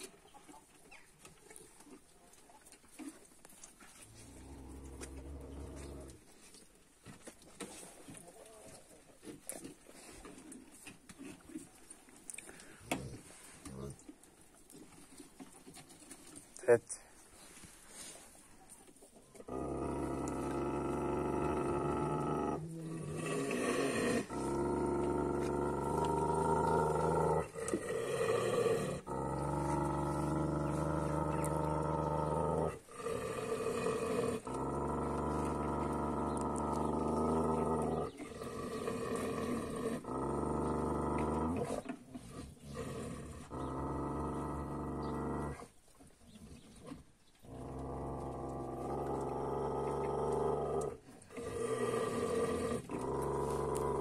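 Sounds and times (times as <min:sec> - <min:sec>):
dogs growling: 0:03.9 - 0:06.3, 0:19.4 - 0:54.0.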